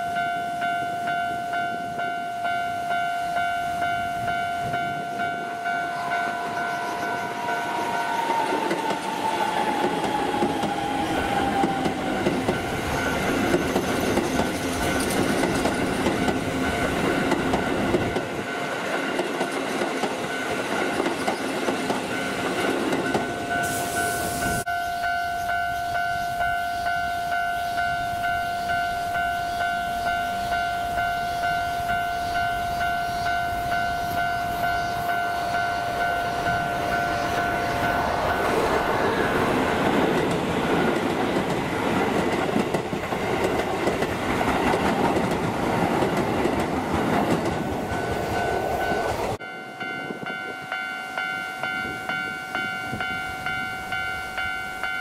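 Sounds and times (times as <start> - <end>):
train passing rumble: 0.0 - 55.0
train clattering over rail joints: 8.1 - 23.6, 36.0 - 49.4.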